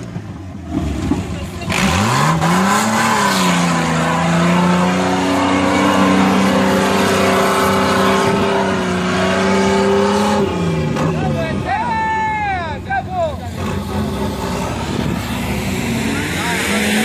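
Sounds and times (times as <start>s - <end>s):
engine revving hard: 0.7s - 11.7s, 13.5s - 17.0s.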